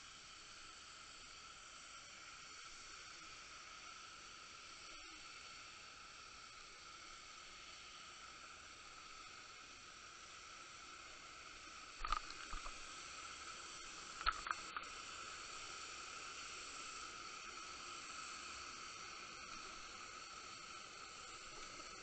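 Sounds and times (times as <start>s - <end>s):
faint steady whine: 0.0s - 22.0s
steady underwater hiss: 0.0s - 22.0s
sharp clicks and knocks: 12.0s - 12.7s, 14.2s - 14.9s.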